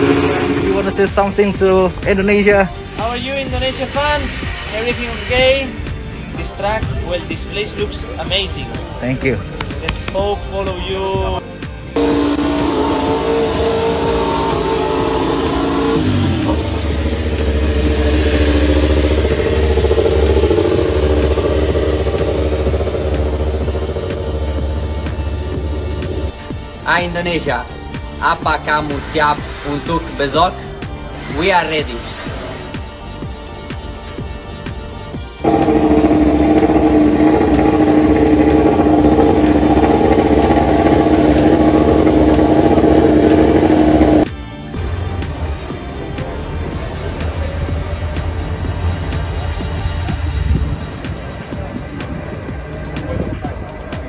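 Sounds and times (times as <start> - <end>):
motorcycle engine idling: 11.9 - 26.4, 35.4 - 54.0.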